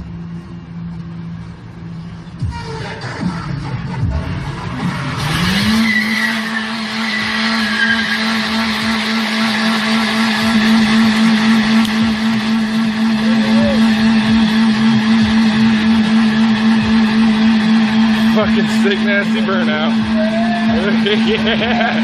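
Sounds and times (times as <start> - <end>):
tyres spinning and squealing: 2.5 - 10.2
car engine revving high: 3.6 - 22.0.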